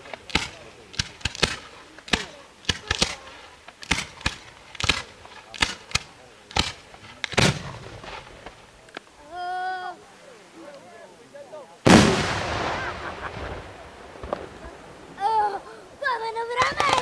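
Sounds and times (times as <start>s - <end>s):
fireworks cracking: 0.0s - 9.1s, 11.8s - 17.0s.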